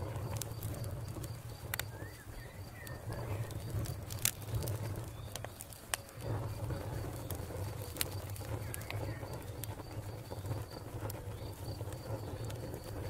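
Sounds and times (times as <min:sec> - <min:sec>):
low rumble: 0:00.0 - 0:13.0
wood fire crackling: 0:00.0 - 0:13.0
bird chirping: 0:01.8 - 0:03.7, 0:04.4 - 0:05.8.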